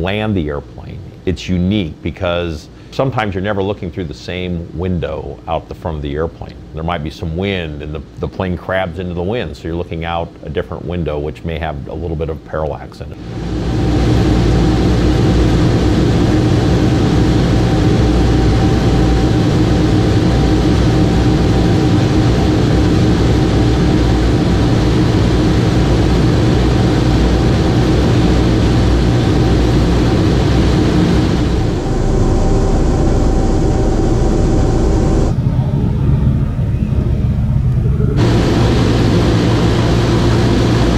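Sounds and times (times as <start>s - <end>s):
aircraft engines droning: 13.0s - 40.9s.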